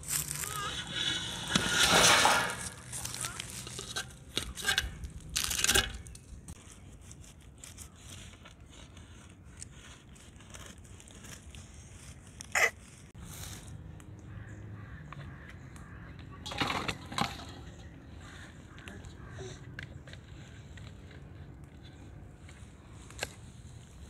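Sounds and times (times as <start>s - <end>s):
crunching crackles: 0.0s - 14.1s
knife scraping bread crust: 2.7s - 13.2s.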